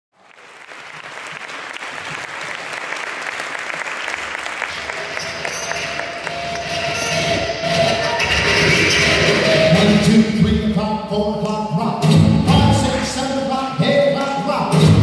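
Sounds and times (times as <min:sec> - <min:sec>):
audience applauding: 0:00.2 - 0:10.0.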